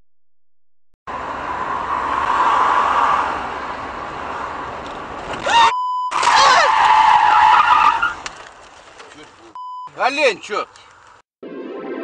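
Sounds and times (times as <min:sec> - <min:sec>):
car cabin road noise: 0:01.1 - 0:11.2
cry: 0:05.4 - 0:08.1
censor bleep: 0:05.7 - 0:06.1.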